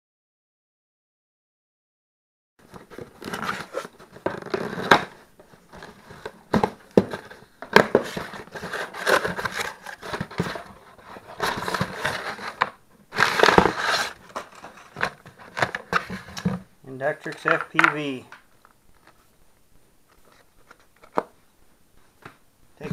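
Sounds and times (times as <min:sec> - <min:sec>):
crumpled paper rustling: 0:02.6 - 0:16.6
cardboard box being cut open: 0:13.2 - 0:14.2.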